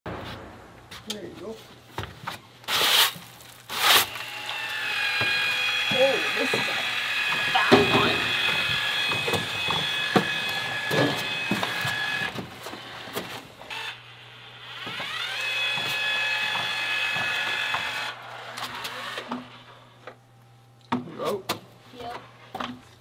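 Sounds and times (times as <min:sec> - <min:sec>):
low hum: 0:00.1 - 0:01.9
caulking gun motor whining: 0:03.7 - 0:19.6.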